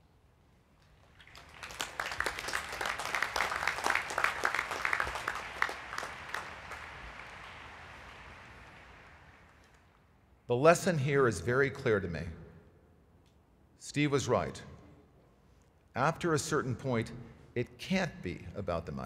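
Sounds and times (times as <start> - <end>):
crowd applauding: 1.0 - 10.0.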